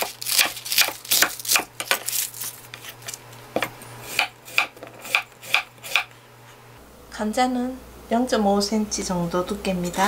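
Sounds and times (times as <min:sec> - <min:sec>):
knife chopping on wooden board: 0:00.0 - 0:02.0, 0:03.6 - 0:06.1.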